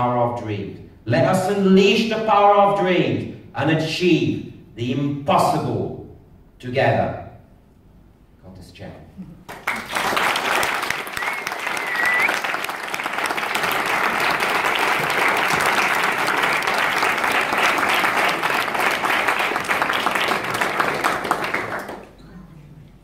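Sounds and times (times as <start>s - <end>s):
audience applauding: 9.5s - 22.2s
short high whistle: 11.1s - 12.5s.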